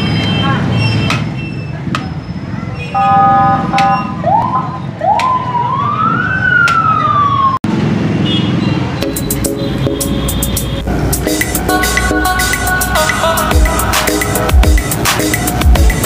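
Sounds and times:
street noise: 0.0 - 16.0
vehicle horn honking: 2.8 - 4.2
siren wailing: 3.0 - 7.7.

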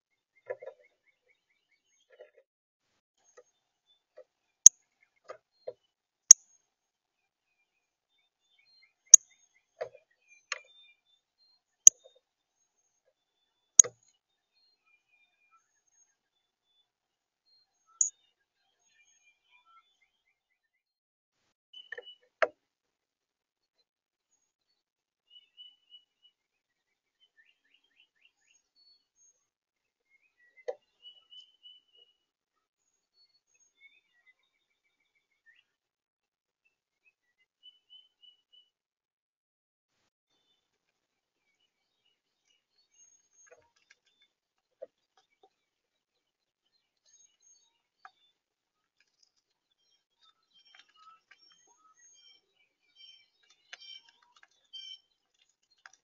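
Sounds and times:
small birds chirping: 3.2 - 20.7, 24.3 - 35.8, 36.6 - 38.8, 40.3 - 56.0.

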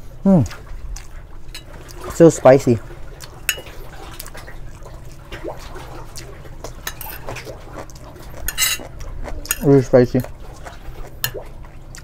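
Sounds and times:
wet chewing: 0.0 - 12.0
spoon clicking on plate: 8.5 - 8.8.

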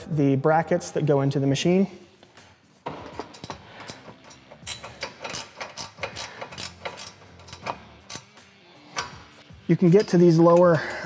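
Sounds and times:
hand wrench ratcheting: 3.2 - 9.2.

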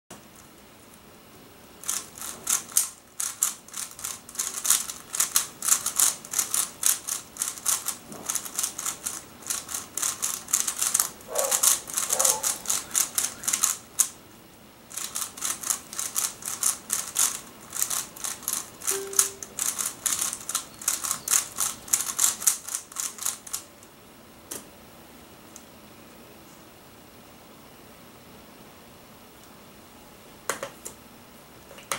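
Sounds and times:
puzzle cube layers clicking: 1.8 - 14.1, 14.9 - 23.6.

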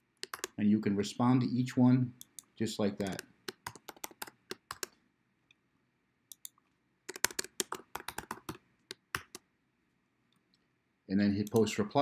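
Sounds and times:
typing on keyboard: 0.2 - 0.6, 3.0 - 5.0, 6.3 - 9.4.

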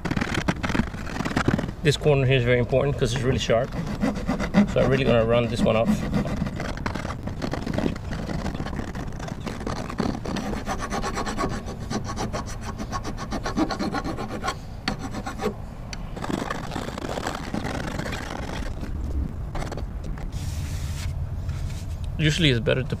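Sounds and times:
file rasping on aluminum: 3.0 - 15.6.

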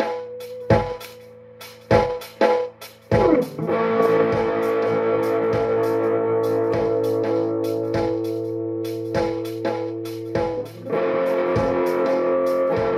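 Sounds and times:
drum beat: 0.0 - 12.9
electric guitar chords: 3.1 - 12.9.

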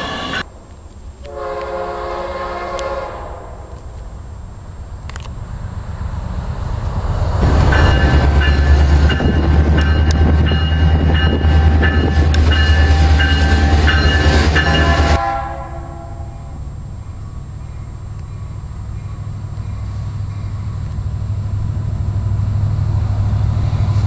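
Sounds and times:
diesel locomotive engine rumble: 0.0 - 24.0
distant train: 0.0 - 24.0
locomotive bell ringing: 7.6 - 16.6.

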